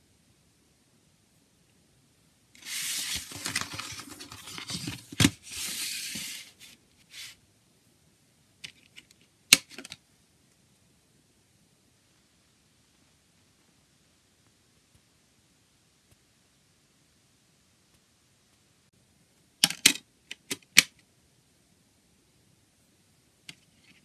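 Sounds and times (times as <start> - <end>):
cardboard scraping and rustling: 2.6 - 7.4.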